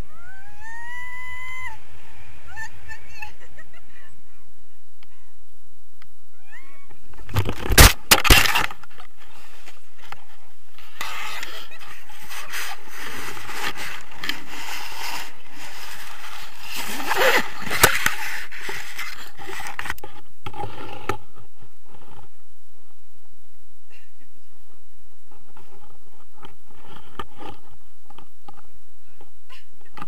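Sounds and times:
nylon canopy rustling and flapping: 7.2s - 19.8s.

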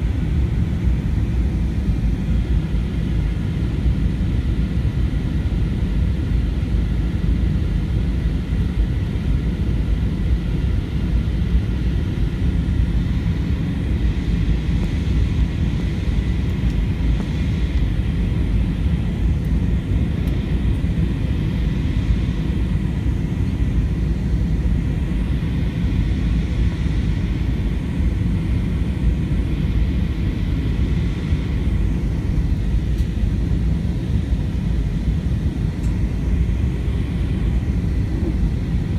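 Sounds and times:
low rumble of engines and airflow: 0.0s - 38.9s.

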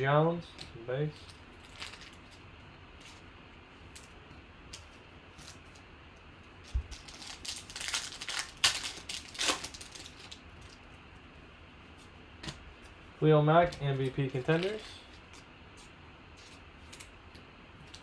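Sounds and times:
plastic wrapper tearing and crinkling: 1.6s - 2.4s, 6.6s - 10.8s.

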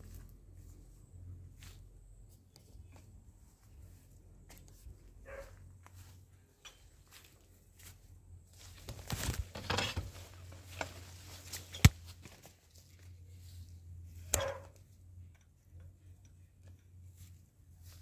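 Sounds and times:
faint low hum: 0.0s - 18.0s
camera rustling through foliage: 8.6s - 13.5s.

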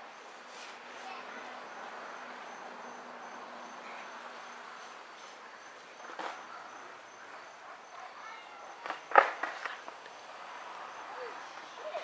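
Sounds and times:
faint outdoor hiss: 0.0s - 12.0s
insects chirping: 1.4s - 12.0s.

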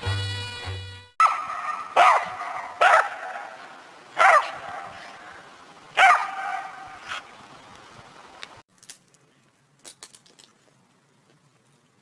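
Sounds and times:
dog barking: 1.2s - 3.6s, 4.2s - 5.1s, 6.0s - 7.3s.

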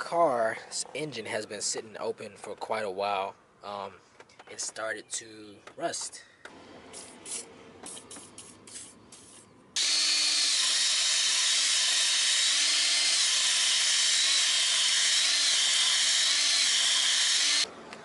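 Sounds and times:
power tool scouring metal: 9.8s - 17.7s.

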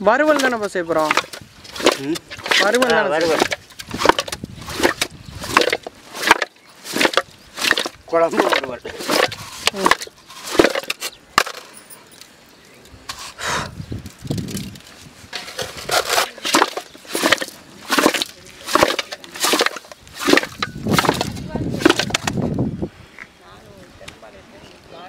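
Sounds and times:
knocks and clatter in metal pot: 0.2s - 11.6s, 15.3s - 22.4s.

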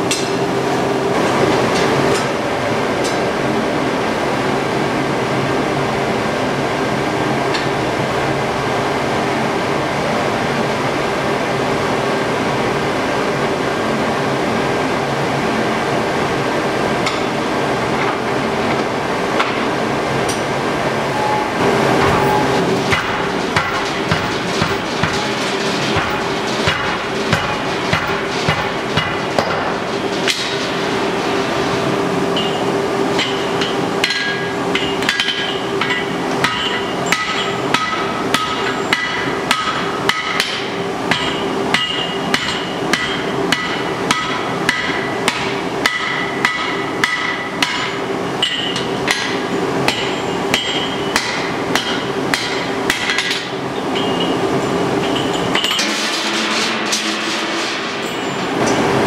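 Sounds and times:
hammer striking hot iron: 22.0s - 30.6s, 32.4s - 32.6s, 33.2s - 54.4s.

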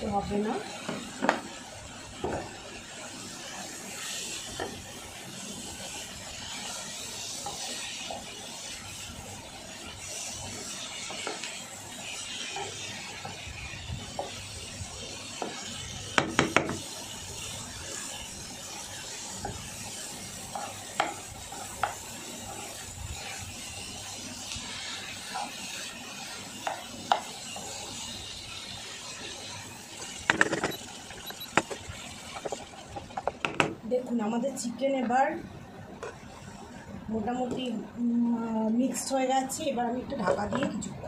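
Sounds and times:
frying hiss: 0.0s - 41.0s
knocks on pan: 16.2s - 16.8s, 30.3s - 30.8s, 33.2s - 33.8s.

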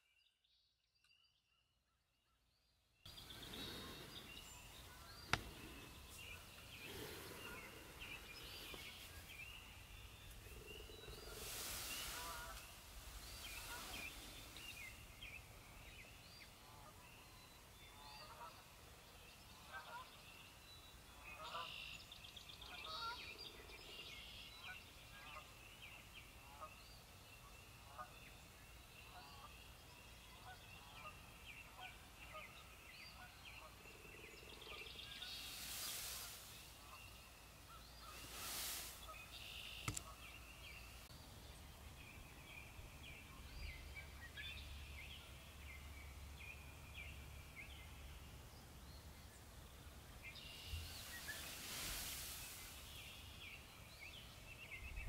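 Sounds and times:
faint birdsong: 0.0s - 55.0s
short rushing hisses: 11.0s - 15.1s, 35.2s - 37.0s, 38.0s - 40.1s, 50.8s - 53.2s.

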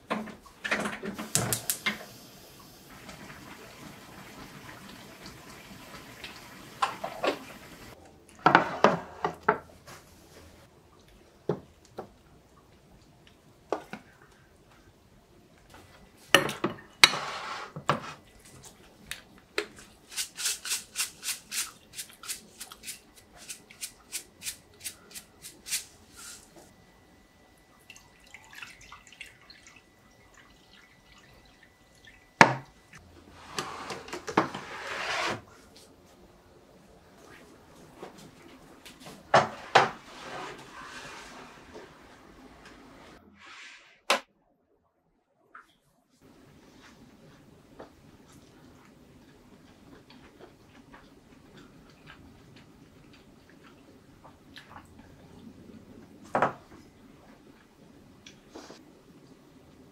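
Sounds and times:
shaker shaking seeds: 20.0s - 26.5s.

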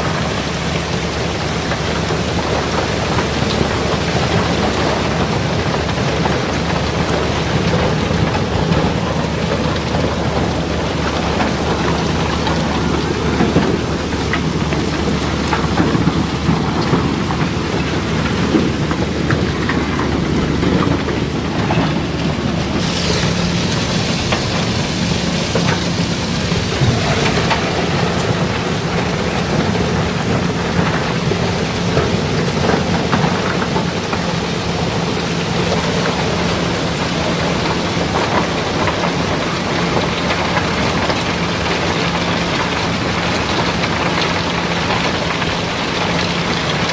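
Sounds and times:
low rumble: 6.9s - 36.6s
steady hum: 6.9s - 37.7s.

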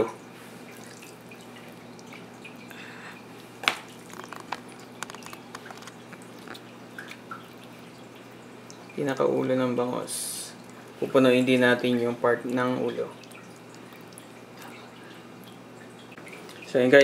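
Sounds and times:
faint steady hum: 0.0s - 17.0s
wet squishing of fish filling: 2.8s - 8.6s.

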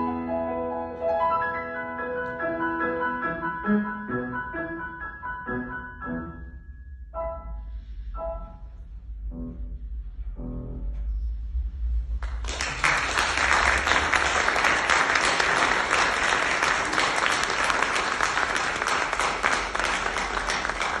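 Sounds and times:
audience applauding: 12.2s - 21.0s
hands clapping close by: 12.2s - 21.0s.

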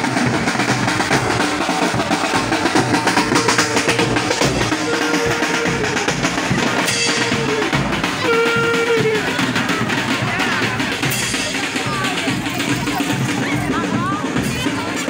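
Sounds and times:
bass drum and snare drums: 0.0s - 15.0s
held note: 3.0s - 9.3s.

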